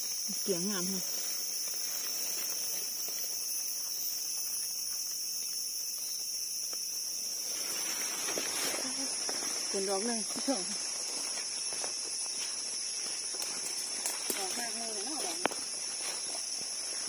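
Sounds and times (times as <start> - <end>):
high-pitched insect drone: 0.0 - 17.0
leaves rustling: 0.0 - 17.0.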